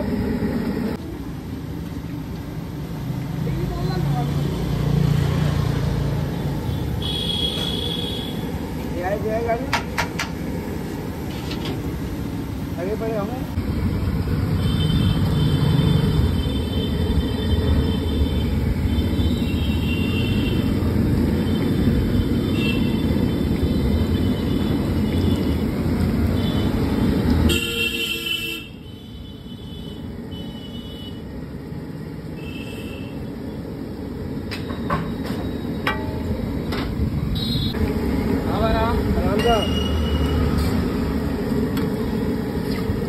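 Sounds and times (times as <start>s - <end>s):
passing traffic: 0.0s - 43.0s
vehicle horn toots: 6.7s - 8.4s, 27.5s - 31.2s, 32.4s - 33.2s
ghee sizzling on a griddle: 12.8s - 27.4s.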